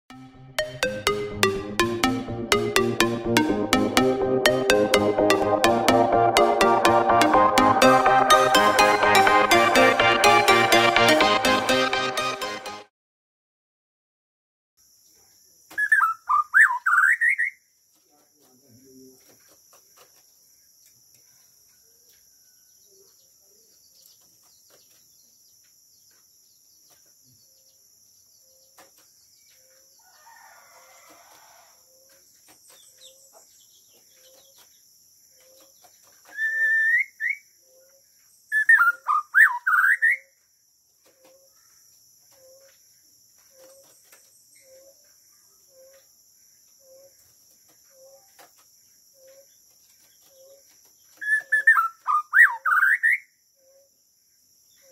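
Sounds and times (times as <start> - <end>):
bird whistling song: 15.8 - 17.6, 36.3 - 37.9, 38.5 - 40.3, 51.2 - 53.9.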